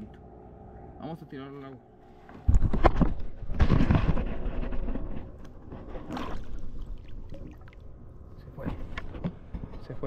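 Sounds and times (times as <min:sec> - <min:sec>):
water splashing and gurgling: 0:05.8 - 0:08.0.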